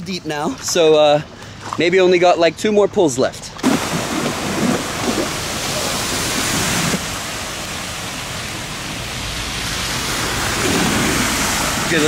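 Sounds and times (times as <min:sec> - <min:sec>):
rain and floodwater rushing: 0:03.6 - 0:12.0.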